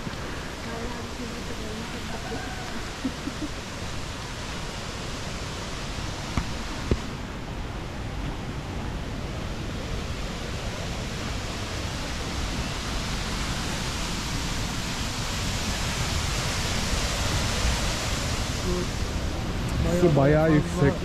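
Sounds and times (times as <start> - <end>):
fast-flowing stream water: 0.0 - 21.0.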